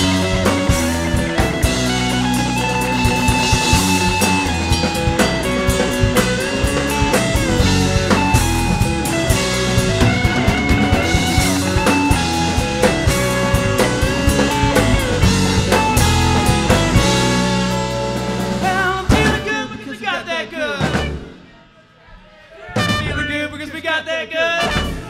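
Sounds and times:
bass guitar: 0:00.0 - 0:20.0, 0:20.6 - 0:21.4, 0:22.6 - 0:23.7, 0:24.6 - 0:25.0
drum kit: 0:00.0 - 0:20.0, 0:20.7 - 0:21.5, 0:22.7 - 0:23.6, 0:24.6 - 0:25.0
electric guitars: 0:00.0 - 0:20.0.

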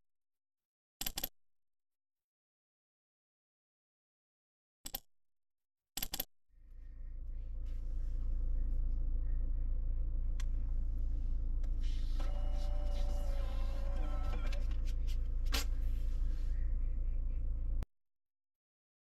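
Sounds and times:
car cabin hum: 0:06.7 - 0:17.8
disc player whirring: 0:07.6 - 0:17.8.

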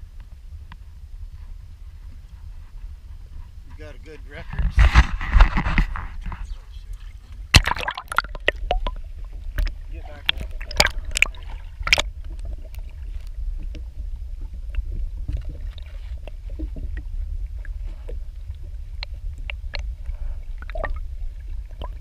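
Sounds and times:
underwater water rumble: 0:00.0 - 0:22.0
faint clicks and ticks: 0:08.1 - 0:22.0.

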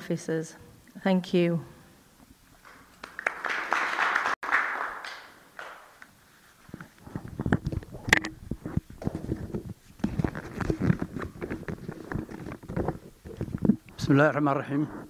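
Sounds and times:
applause: 0:02.6 - 0:06.0.

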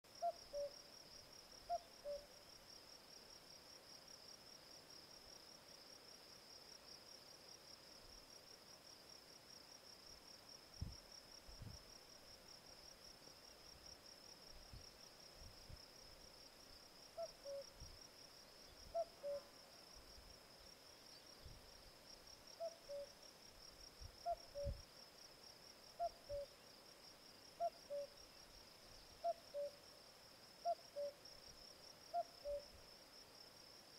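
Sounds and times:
cuckoo calling: 0:00.2 - 0:00.7, 0:01.7 - 0:02.3, 0:17.2 - 0:17.7, 0:18.9 - 0:19.5, 0:22.6 - 0:23.1, 0:24.2 - 0:24.8, 0:26.0 - 0:26.5, 0:27.6 - 0:28.1, 0:29.2 - 0:29.8, 0:30.6 - 0:31.2, 0:32.1 - 0:32.6.

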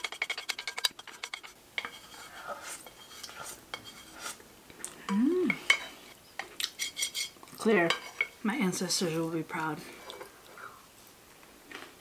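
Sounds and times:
wooden spoon scraping a plate: 0:00.0 - 0:04.4, 0:05.7 - 0:08.4.

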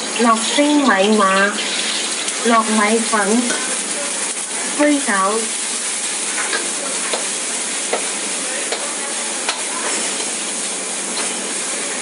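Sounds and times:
noodles sizzling in wok: 0:00.0 - 0:12.0.

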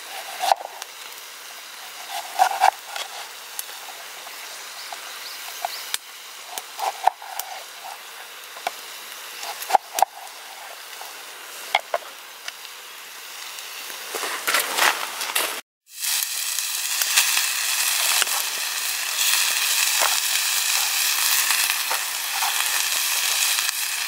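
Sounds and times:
food sizzling in a pan: 0:00.0 - 0:14.4, 0:15.8 - 0:24.0
knife crunching: 0:01.9 - 0:04.0, 0:06.5 - 0:08.0.

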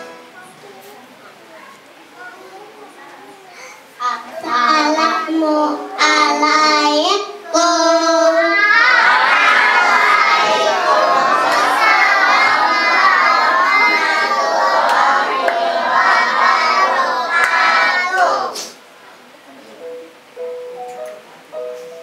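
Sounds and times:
child singing into a microphone: 0:02.3 - 0:09.4
children shouting and cheering: 0:07.5 - 0:18.6.

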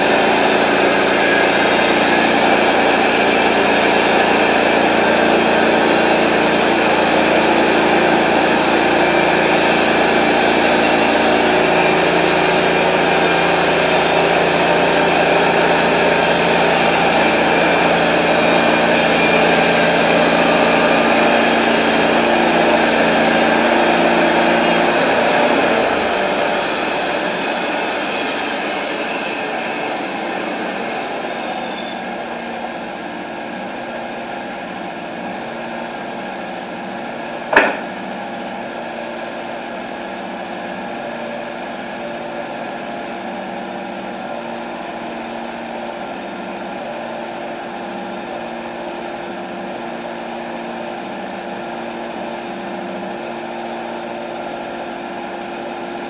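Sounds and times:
sawmill engine idling: 0:00.0 - 0:56.0
wooden board clacking down: 0:37.5 - 0:37.9.

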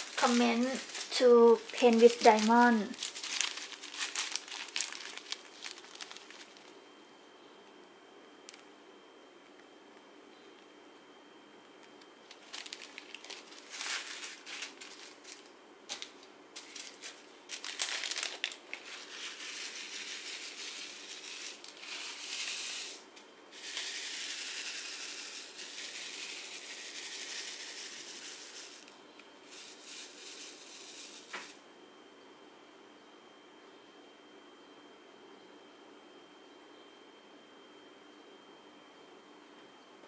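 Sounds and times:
tiny beads rattling in a tray: 0:00.0 - 0:06.6, 0:12.3 - 0:15.5, 0:16.6 - 0:23.0, 0:23.6 - 0:28.9, 0:29.5 - 0:31.6
plastic bags crinkling: 0:00.0 - 0:06.8, 0:12.2 - 0:22.6.

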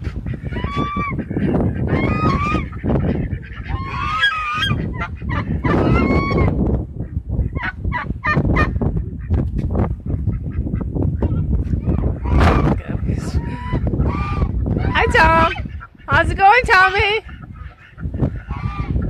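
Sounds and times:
geese honking: 0:00.0 - 0:06.6, 0:11.9 - 0:19.0
wind buffeting microphone: 0:00.0 - 0:19.0.

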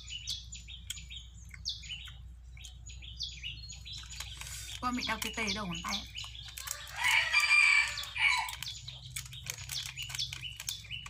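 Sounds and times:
small birds chirping: 0:00.0 - 0:11.0
rooster crowing: 0:06.6 - 0:08.6.

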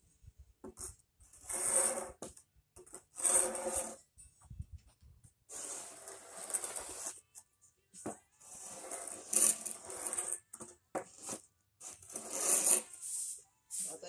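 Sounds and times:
push broom scraping over pavers: 0:01.3 - 0:02.3, 0:03.0 - 0:04.0, 0:05.5 - 0:07.2, 0:08.4 - 0:10.4, 0:11.0 - 0:13.3.

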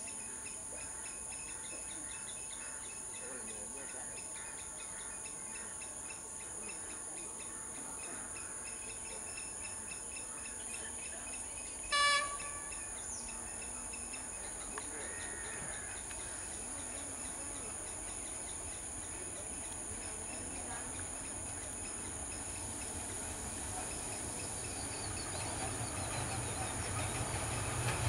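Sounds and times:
crickets chirping drone: 0:00.0 - 0:28.0
faint train rumble: 0:00.0 - 0:28.0
train horn blast: 0:11.9 - 0:13.0.

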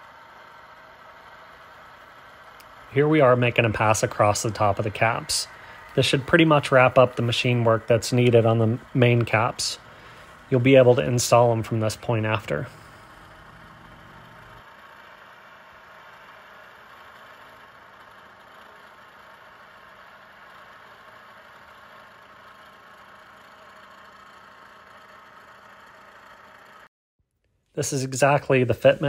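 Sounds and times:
milling machine cutting metal: 0:00.0 - 0:14.6
low hum: 0:00.0 - 0:26.9.

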